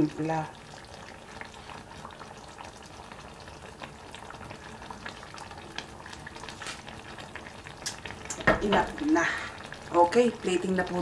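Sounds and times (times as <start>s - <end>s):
broth simmering in a frying pan: 0.0s - 11.0s
small bubbles popping: 7.7s - 9.4s.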